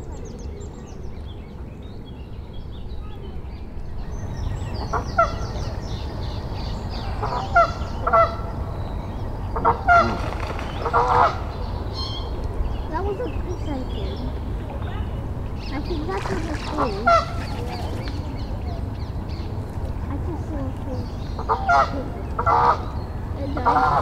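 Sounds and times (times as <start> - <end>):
small birds chirping: 0.0 - 24.0
geese honking: 7.0 - 8.5, 9.5 - 11.6, 15.8 - 18.0, 21.4 - 24.0.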